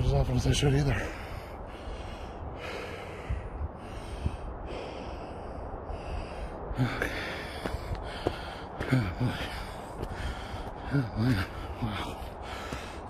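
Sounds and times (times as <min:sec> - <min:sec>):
man breathing hard: 0:00.9 - 0:13.0
soft footsteps on mud: 0:07.5 - 0:13.0.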